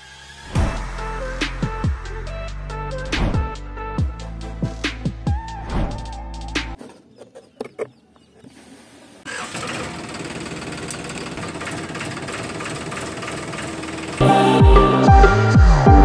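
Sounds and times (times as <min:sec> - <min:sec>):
electronic music with sliding bass: 0:00.4 - 0:06.8, 0:14.2 - 0:16.0
toy tractor engine running: 0:09.3 - 0:14.2.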